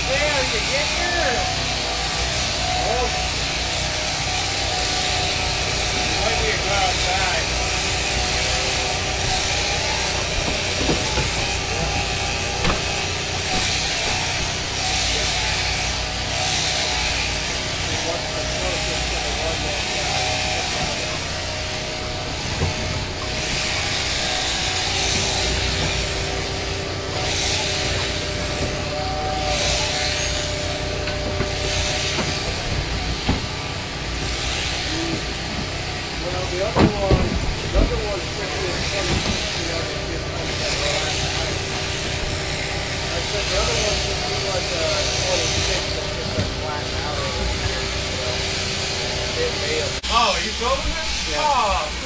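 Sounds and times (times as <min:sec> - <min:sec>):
electric shearing handpiece whirring: 0:00.0 - 0:52.0
steady mechanical hum: 0:00.0 - 0:52.0
faint knocks: 0:10.2 - 0:14.2.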